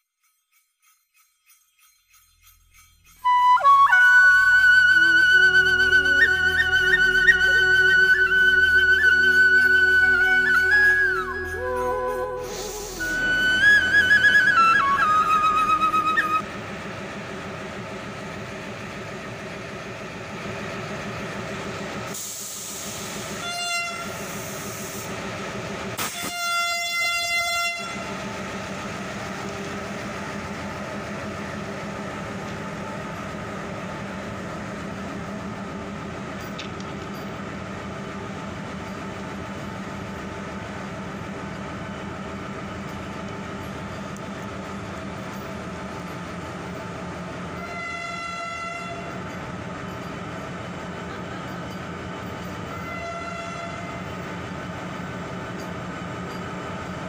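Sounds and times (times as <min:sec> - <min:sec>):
electric train running past: 0:00.3 - 0:57.0
train horn: 0:03.3 - 0:16.4, 0:23.4 - 0:24.5, 0:26.0 - 0:28.2, 0:47.6 - 0:49.2, 0:52.7 - 0:54.1.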